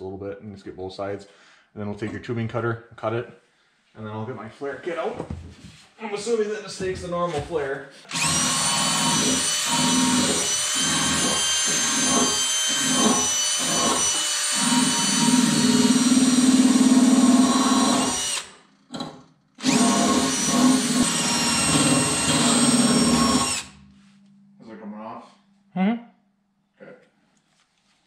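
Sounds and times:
cordless power tool whining: 8.1s - 18.6s, 19.6s - 23.9s.

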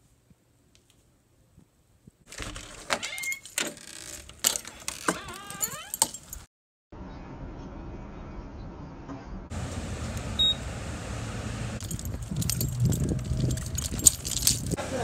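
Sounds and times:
creaking squeal: 2.5s - 6.1s.

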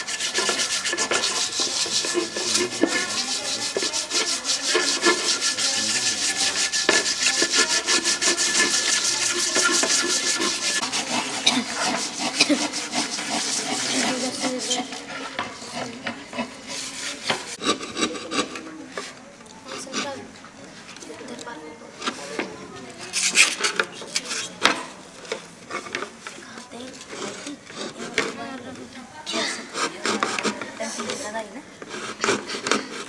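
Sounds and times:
abrasive rubbing on wood: 0.0s - 20.2s, 27.0s - 28.6s, 29.3s - 33.0s.

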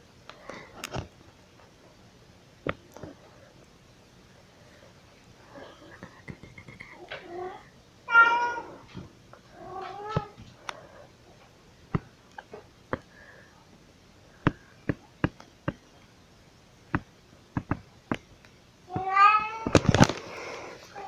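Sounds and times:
house cat meowing: 9.6s - 10.4s, 18.9s - 19.9s
sharp irregular clicks and taps: 14.5s - 15.8s, 16.9s - 19.1s.

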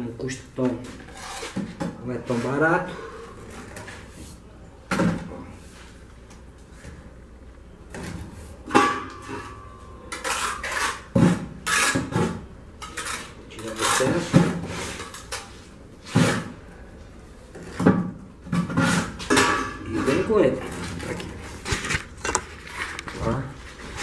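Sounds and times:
trowel scraping metal and mortar: 10.1s - 12.2s.

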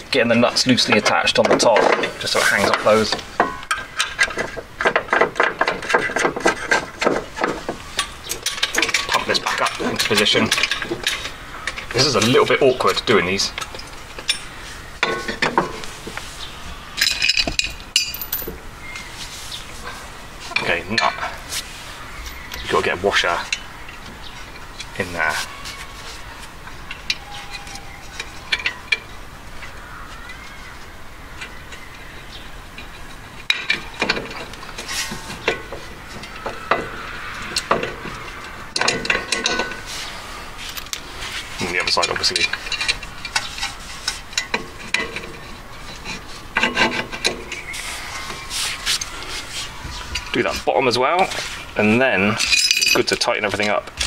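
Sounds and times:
metal nuts and bolts clinking: 0.3s - 15.9s, 17.0s - 18.6s, 31.4s - 39.9s, 41.6s - 47.8s, 50.2s - 54.0s
metal clinks and knocks of tools: 17.0s - 18.6s, 38.8s - 39.9s, 52.3s - 53.7s.

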